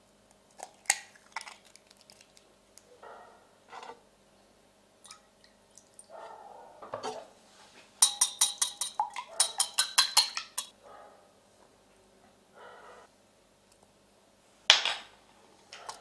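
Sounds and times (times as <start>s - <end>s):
whisk clicking against bowl: 8.0s - 10.7s.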